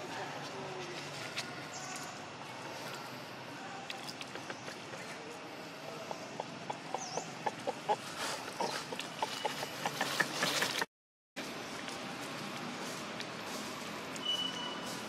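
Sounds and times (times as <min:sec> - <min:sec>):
crackles in dry leaf litter: 0:11.4 - 0:15.0.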